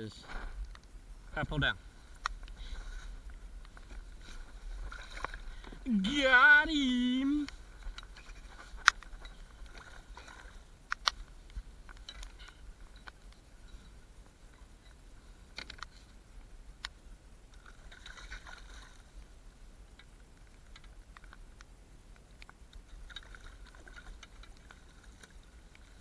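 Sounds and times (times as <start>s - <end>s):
low steady rumble: 0.0s - 26.0s
fishing gear clicks and knocks: 7.8s - 13.8s, 14.8s - 16.1s.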